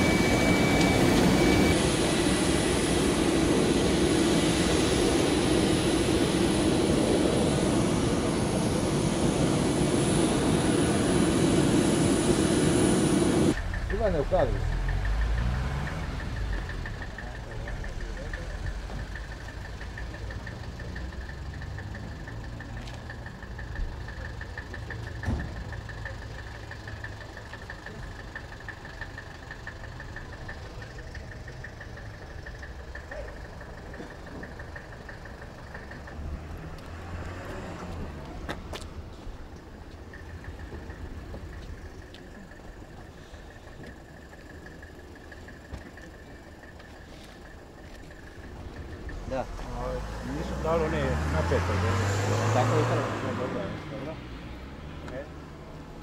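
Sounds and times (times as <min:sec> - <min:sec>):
high-pitched whine: 0:00.0 - 0:19.5
engine idling: 0:00.0 - 0:56.0.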